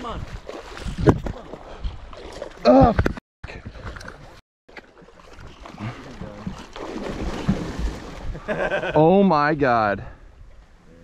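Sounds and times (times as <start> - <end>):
wind on microphone: 0.0 - 2.1.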